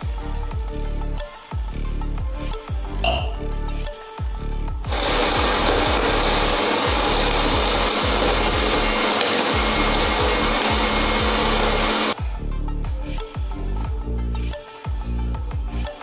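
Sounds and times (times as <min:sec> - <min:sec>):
blender motor whirring: 0:04.9 - 0:12.2.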